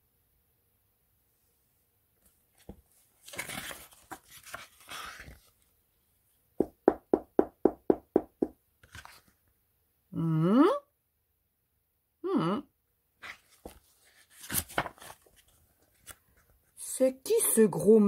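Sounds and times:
paper page turning: 0:02.6 - 0:05.7, 0:08.8 - 0:09.4, 0:13.2 - 0:16.5.

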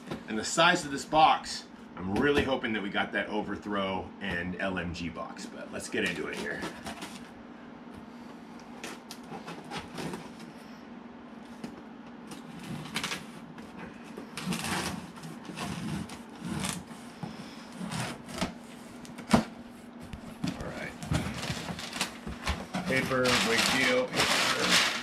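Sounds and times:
cardboard scraping and rustling: 0:06.0 - 0:07.3, 0:08.8 - 0:10.6, 0:11.5 - 0:25.0
packing tape ripping: 0:22.9 - 0:25.0.

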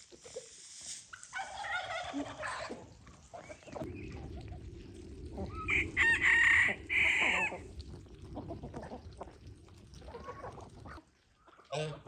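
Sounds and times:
chickens clucking: 0:01.1 - 0:12.0
rooster crowing: 0:05.7 - 0:07.7.

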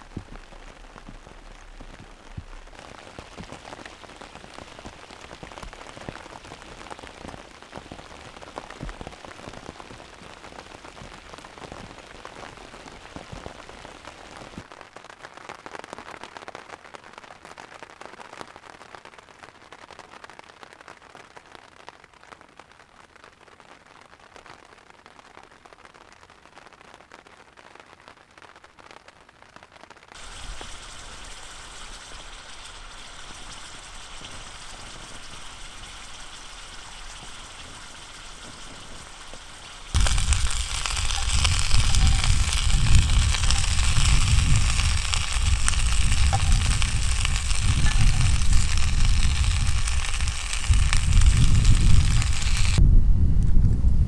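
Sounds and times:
food sizzling in frying pan: 0:00.0 - 0:14.7, 0:30.1 - 0:52.8
rain on a canvas tent: 0:00.0 - 0:52.8
rain on lake water: 0:00.0 - 0:52.8.

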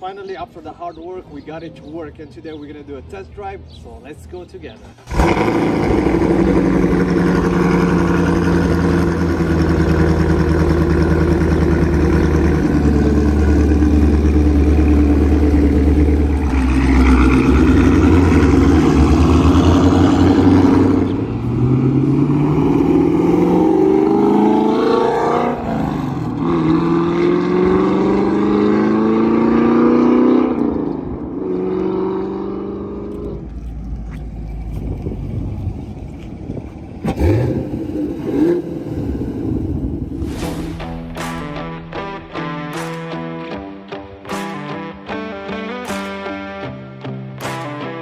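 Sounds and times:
car engine rumbling and accelerating: 0:03.6 - 0:43.5.

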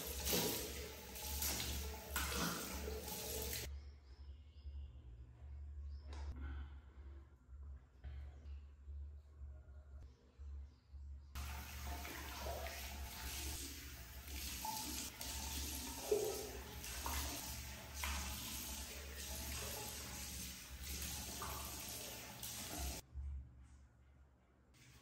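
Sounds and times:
hand splashing water: 0:00.0 - 0:03.7, 0:11.4 - 0:23.0
tap running into basin: 0:00.0 - 0:03.7, 0:11.4 - 0:23.0.

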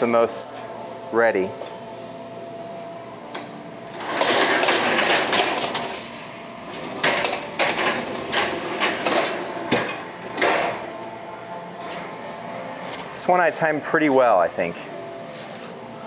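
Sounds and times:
oven loader sliding on rails: 0:03.9 - 0:10.7.

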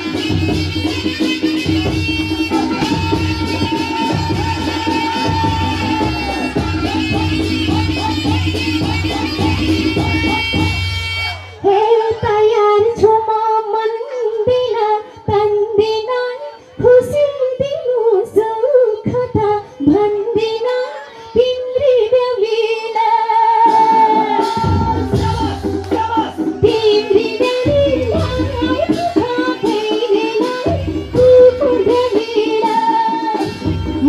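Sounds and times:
woman singing into a microphone: 0:00.0 - 0:34.0.

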